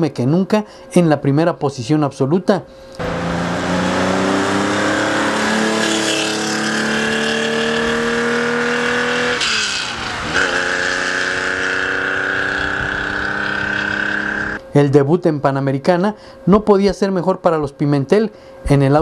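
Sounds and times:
car engine accelerating: 3.0 - 14.6.

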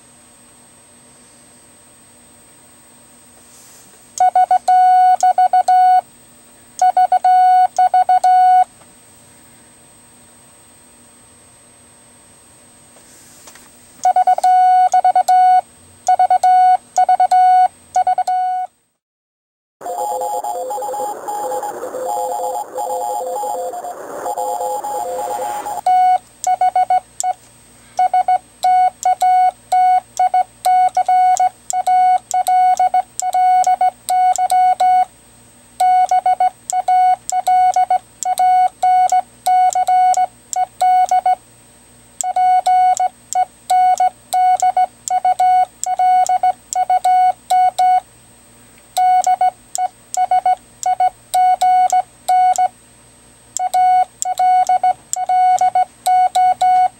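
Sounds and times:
morse code beeps: 4.2 - 6.0, 6.8 - 8.7, 14.0 - 18.7, 19.8 - 27.4, 28.0 - 35.1, 35.8 - 41.4, 42.2 - 48.0, 49.0 - 52.7, 53.6 - 56.9
two-pitched beeping: 19.8 - 27.4.

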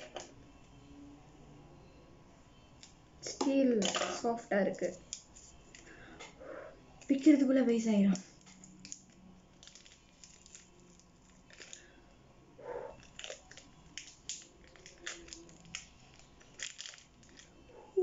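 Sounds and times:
plastic wrapping crinkling and tearing: 8.3 - 12.0, 13.0 - 17.6.

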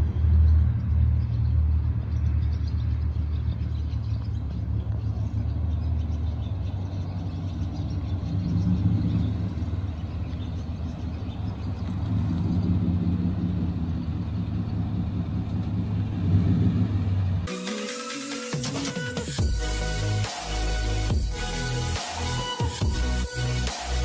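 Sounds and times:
truck exhaust droning: 0.0 - 17.5.

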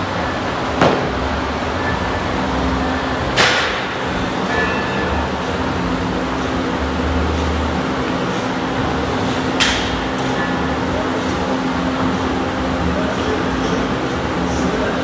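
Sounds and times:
gym fan humming: 0.0 - 15.0.

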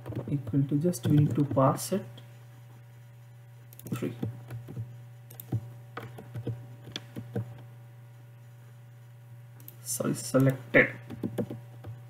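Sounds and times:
low electrical hum: 0.0 - 12.0
computer keyboard typing: 1.0 - 1.8, 3.8 - 7.6, 10.4 - 12.0.

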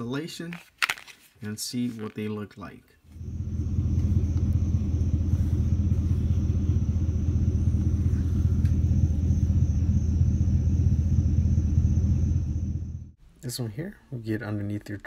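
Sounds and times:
faint high whine: 3.1 - 13.2
pickup engine idling: 3.2 - 13.2.

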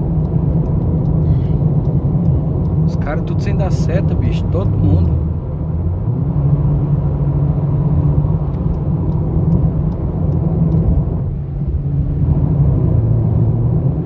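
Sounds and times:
car engine and road noise drone: 0.0 - 14.0
faint ticks: 8.4 - 11.0.

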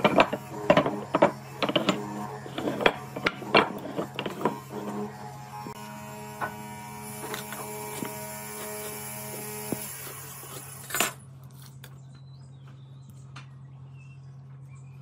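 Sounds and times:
metal tools tapping on wood: 0.0 - 5.0.

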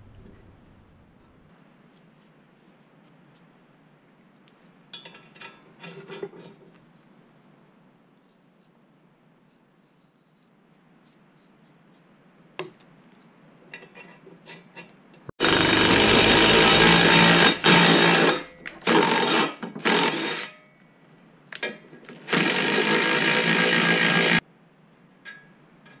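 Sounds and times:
impact tool hammering: 15.4 - 20.2.

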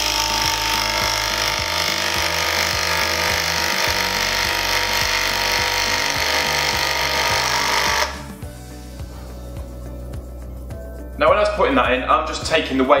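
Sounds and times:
power driver driving screw into wood: 0.0 - 8.4.

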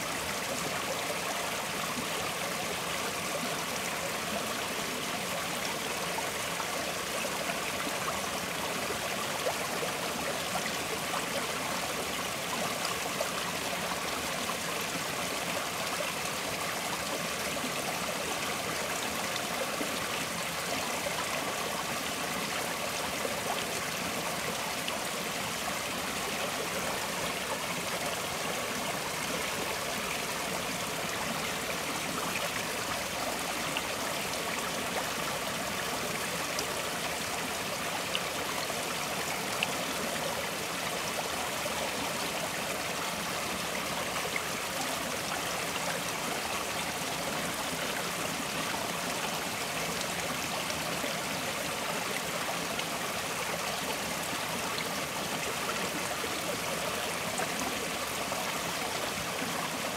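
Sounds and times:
stream flowing and trickling: 0.0 - 59.9.

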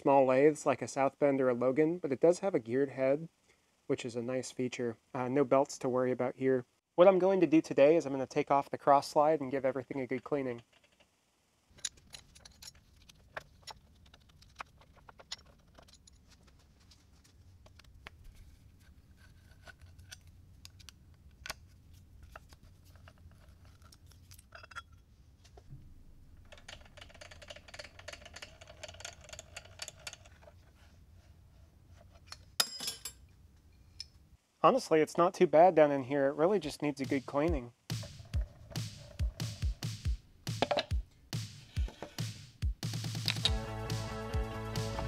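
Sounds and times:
faint low hum: 0.0 - 41.3
metal scraping: 37.9 - 39.9, 40.6 - 42.3.

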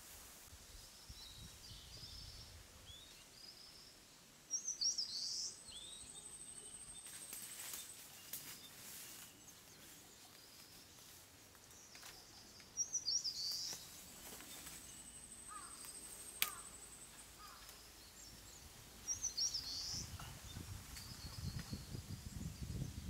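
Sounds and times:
songbird warbling: 12.3 - 21.9.

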